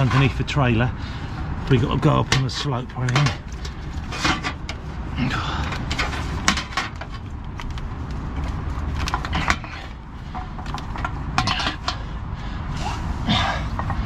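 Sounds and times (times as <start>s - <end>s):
hoses and fittings clunking: 0.0s - 1.0s, 1.6s - 12.4s, 13.2s - 14.0s.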